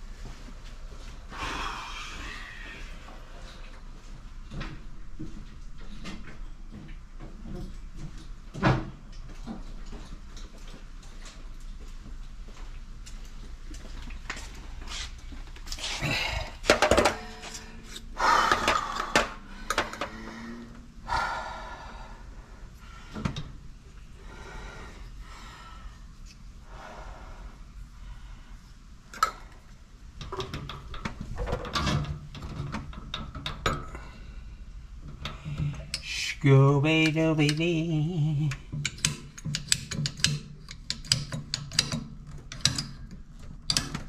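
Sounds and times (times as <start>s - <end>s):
tools and pipe fittings clattering: 15.7s - 20.2s, 30.2s - 34.1s, 38.6s - 44.0s.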